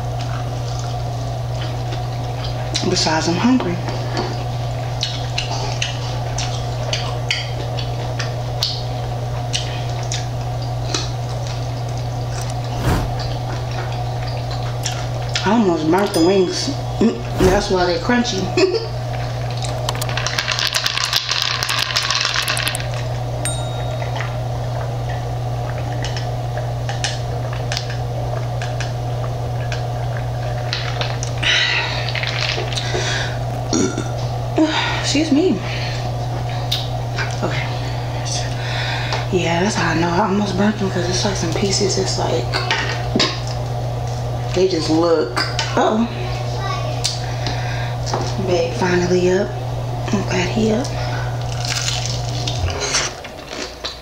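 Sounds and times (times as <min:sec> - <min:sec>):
steady low hum: 0:04.0 - 0:54.0
person swallowing a drink: 0:20.7 - 0:22.9
crunchy chewing: 0:51.4 - 0:54.0.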